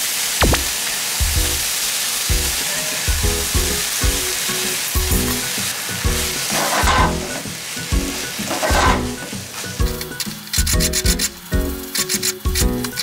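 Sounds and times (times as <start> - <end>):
food sizzling in a frying pan: 0.0 - 13.0
background music with beat: 0.4 - 13.0.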